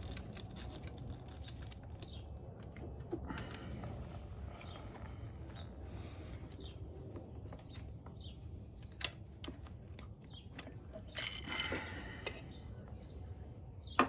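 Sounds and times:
metal engine parts clinking: 10.5s - 12.6s.

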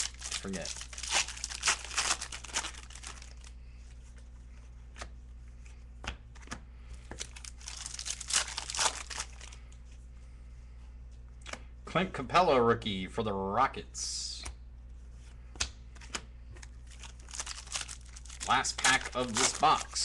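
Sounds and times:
foil wrapper crinkling: 0.0s - 3.5s, 7.2s - 9.6s, 16.8s - 20.0s.

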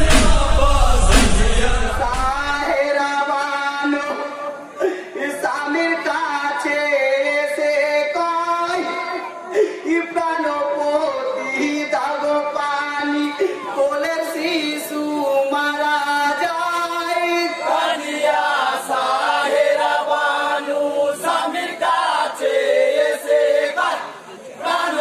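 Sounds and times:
men's chorus singing: 0.0s - 4.3s, 14.3s - 25.0s
man singing lead lament: 0.0s - 17.7s.

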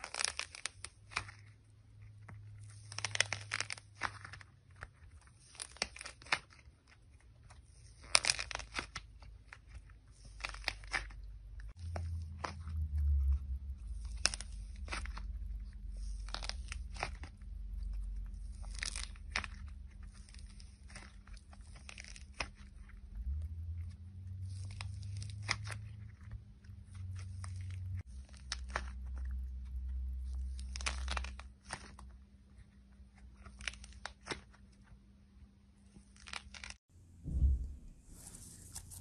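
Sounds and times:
slime crackling and popping: 0.0s - 29.4s, 30.1s - 32.2s, 36.0s - 36.8s
low steady rumble: 11.2s - 31.0s, 36.9s - 39.0s.

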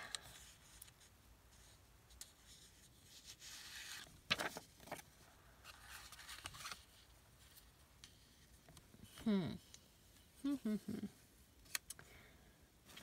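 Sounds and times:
paper card rustling and scraping: 0.3s - 9.2s.

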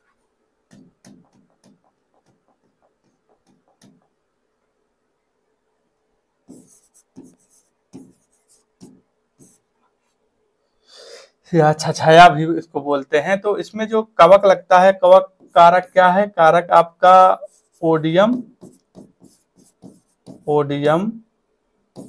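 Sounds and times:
pen strokes on writing board: 0.7s - 4.2s, 6.5s - 10.2s, 17.2s - 21.0s.

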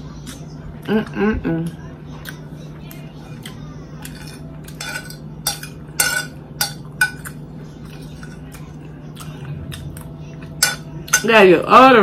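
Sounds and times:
fork scraping a plate: 4.0s - 8.7s.

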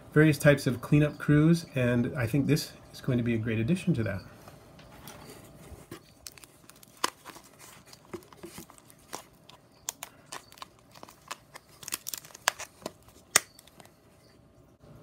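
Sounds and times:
plastic lid clicks and crinkles: 6.2s - 13.9s.

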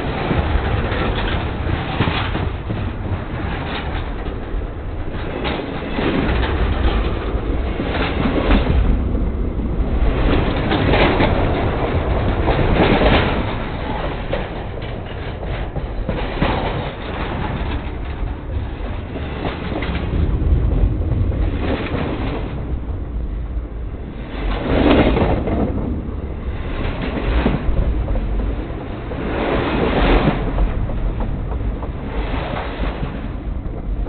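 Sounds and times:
train cars rumbling over track: 0.0s - 34.0s.

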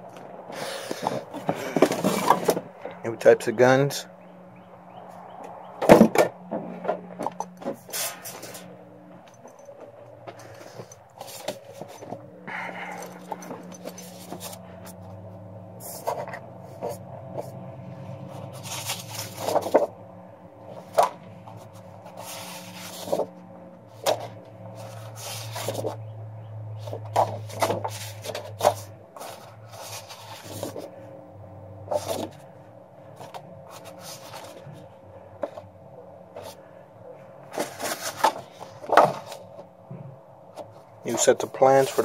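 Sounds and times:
faint low hum: 0.0s - 42.0s
paper rustling: 10.4s - 15.2s, 18.2s - 19.9s, 20.7s - 26.0s, 26.8s - 31.0s, 33.1s - 35.6s, 37.5s - 39.6s.

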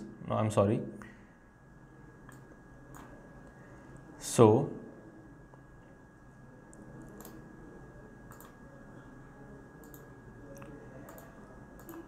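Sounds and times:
computer mouse clicking: 2.2s - 3.1s, 6.7s - 7.4s, 8.3s - 8.6s, 9.8s - 12.0s.

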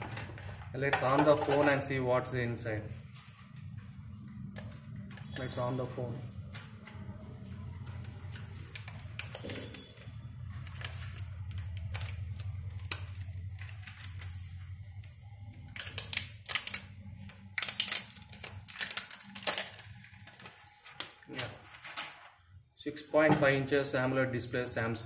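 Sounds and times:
steady low hum: 2.0s - 17.6s.

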